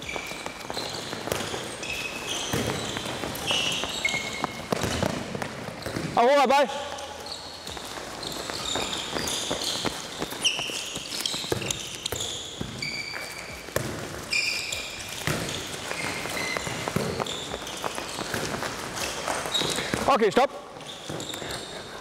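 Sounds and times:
sports shoes squeaking: 0.0s - 22.0s
ball bouncing and being caught: 0.7s - 1.6s, 2.4s - 6.2s, 11.0s - 14.2s, 15.2s - 20.1s
footsteps on hall floor: 6.8s - 20.0s.

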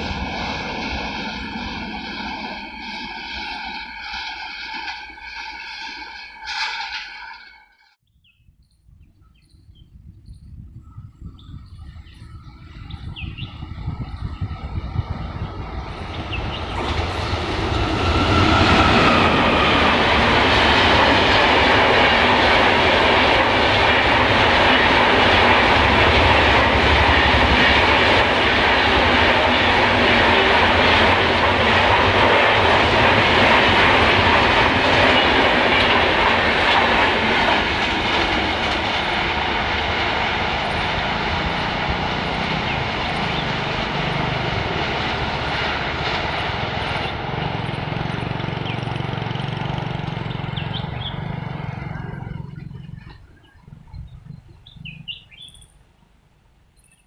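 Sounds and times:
train passing at speed: 0.0s - 8.0s, 11.5s - 56.2s.

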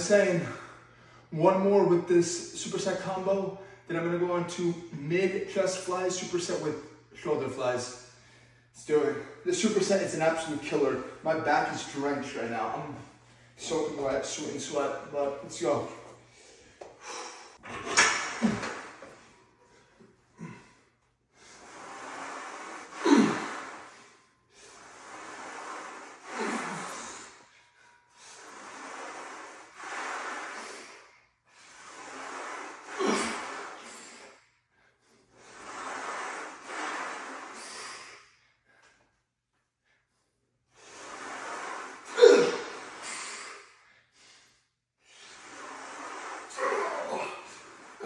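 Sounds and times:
man breathing hard: 16.0s - 17.6s
man grunting: 42.1s - 42.7s, 46.6s - 47.6s.

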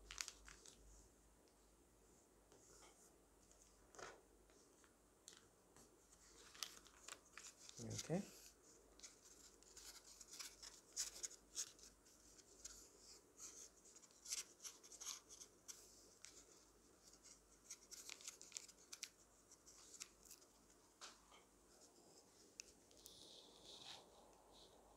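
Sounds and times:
paper crinkling and rustling: 0.0s - 0.8s, 6.1s - 21.2s.

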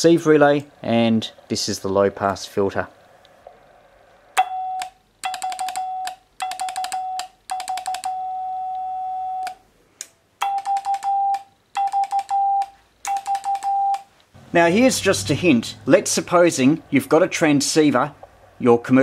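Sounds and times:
morse code beeps: 10.4s - 14.1s.

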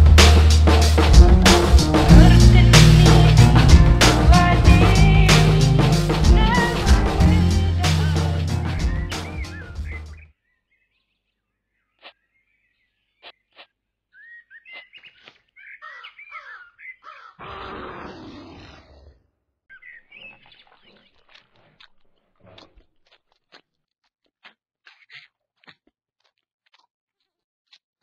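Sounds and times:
small birds chirping: 8.1s - 17.4s, 19.7s - 23.7s.

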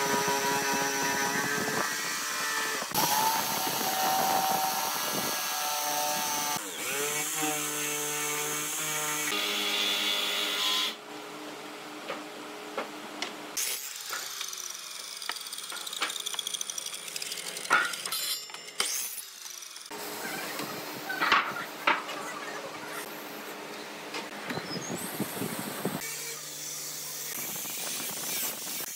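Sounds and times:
jigsaw cutting wood: 0.0s - 11.0s
power tools running: 0.0s - 11.0s.

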